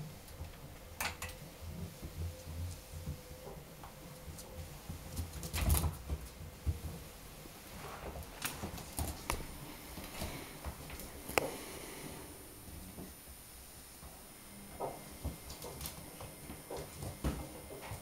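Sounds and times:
dog paws scuffling on laminate floor: 0:01.6 - 0:11.7, 0:14.0 - 0:18.0.

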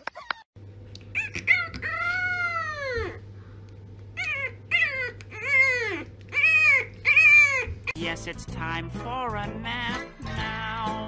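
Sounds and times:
puppy crying: 0:01.1 - 0:03.3, 0:04.1 - 0:08.0.

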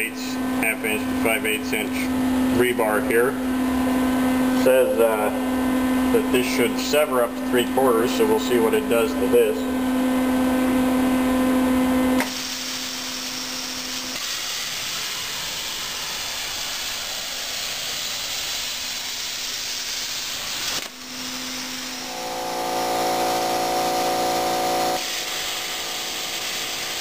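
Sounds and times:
pitched machine hum: 0:00.0 - 0:16.4, 0:20.8 - 0:27.0
plasma cutter hissing: 0:12.2 - 0:27.0.

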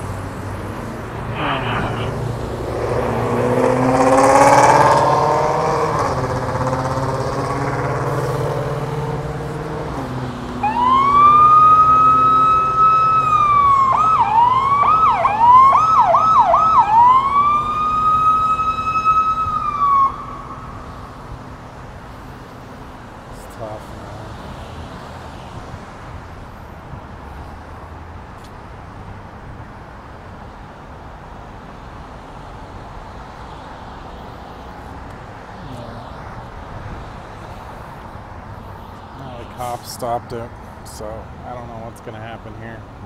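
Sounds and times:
vehicle engine passing: 0:00.0 - 0:21.0, 0:35.4 - 0:41.8
freeway traffic: 0:00.0 - 0:43.0
police siren wailing and yelping: 0:01.2 - 0:02.3, 0:10.6 - 0:20.8.

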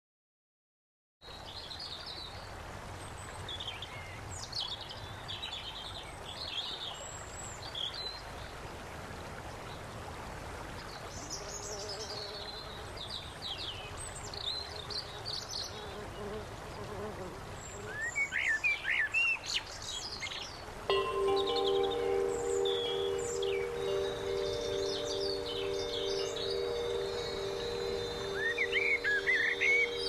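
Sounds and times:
background hiss: 0:10.8 - 0:30.0
birds chirping and singing: 0:20.9 - 0:30.0
faint hum: 0:20.9 - 0:30.0.

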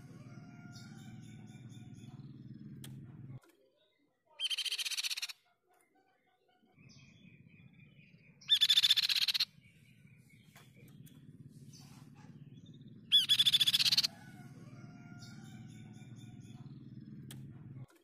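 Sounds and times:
low steady hum: 0:00.0 - 0:03.4, 0:06.7 - 0:18.0
bird trilling: 0:04.4 - 0:05.4, 0:06.8 - 0:17.6.

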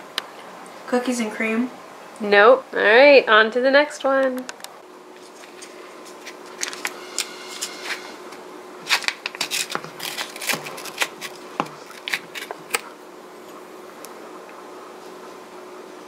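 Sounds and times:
foil seal crinkling: 0:05.2 - 0:07.0, 0:08.8 - 0:12.9.

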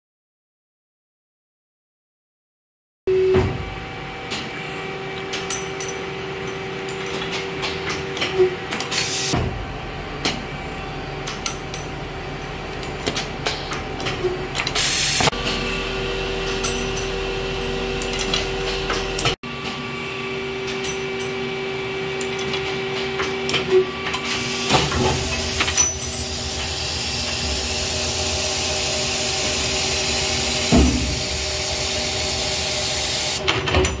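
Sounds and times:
machine motor hum: 0:06.2 - 0:33.6
compressed air hiss: 0:14.8 - 0:15.3, 0:29.0 - 0:33.4.

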